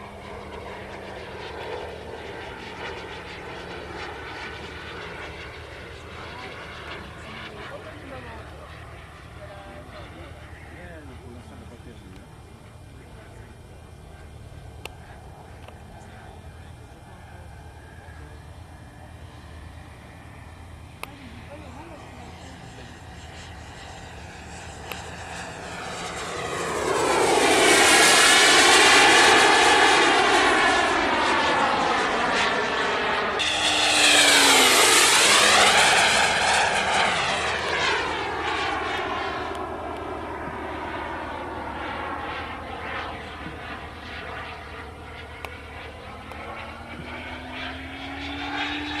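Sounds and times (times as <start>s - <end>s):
model plane motor passing: 16.0s - 49.0s.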